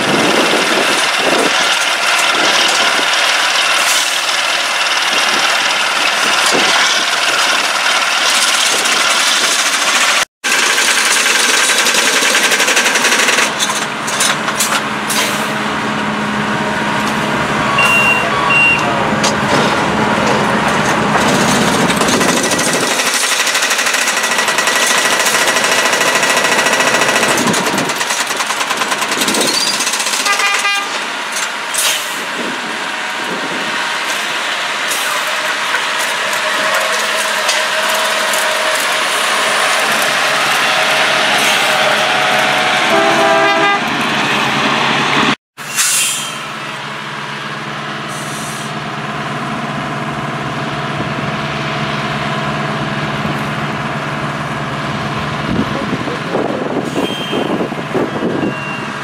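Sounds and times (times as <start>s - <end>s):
diesel engines running: 0.0s - 59.0s
short beeps: 17.7s - 18.9s, 58.2s - 58.9s.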